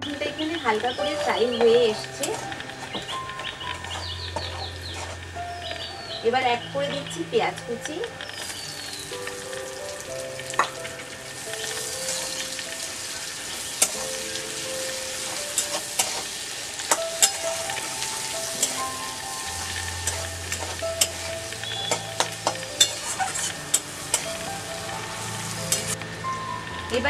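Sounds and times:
onions sizzling in hot oil: 0.1 - 27.0
metal spatula scraping pan: 15.2 - 18.9, 19.6 - 24.5.

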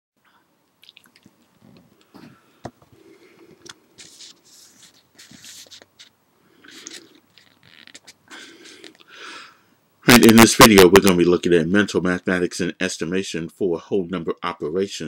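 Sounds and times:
paper rustling and crinkling: 4.0 - 6.1.

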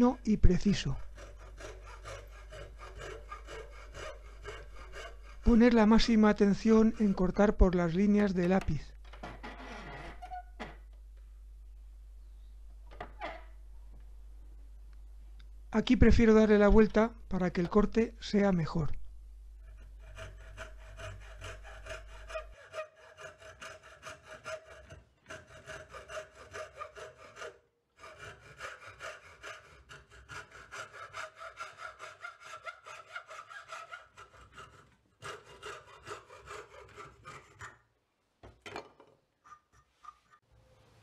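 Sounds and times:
hacksaw cutting wood: 0.9 - 7.5, 19.6 - 37.8.

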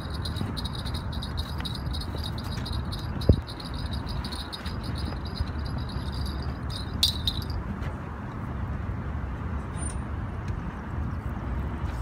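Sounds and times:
wind rumble on microphone: 0.0 - 8.8.

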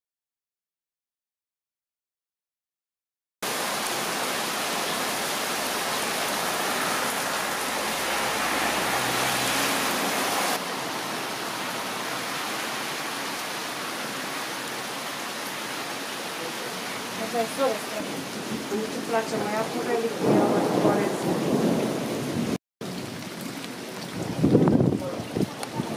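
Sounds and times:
heavy rain splashing on paving: 3.4 - 25.9.

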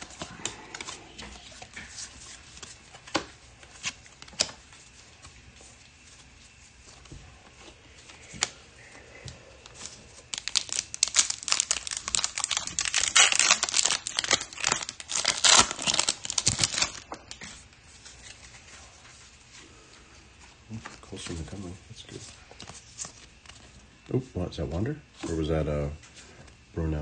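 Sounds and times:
handling of cards: 0.0 - 19.4, 20.4 - 24.1
wrapper tearing and crinkling: 10.2 - 17.5.

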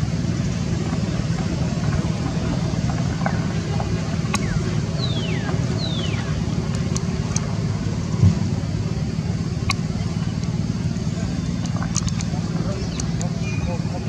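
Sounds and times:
low background rumble: 0.0 - 14.0.

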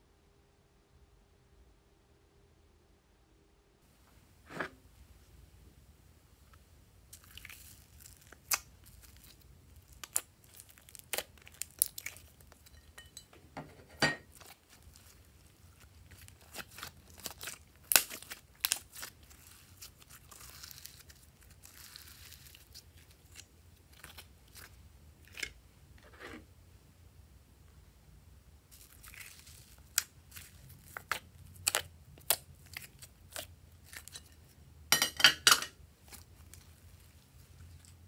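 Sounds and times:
slime sticky pops and crackles: 16.4 - 19.1.

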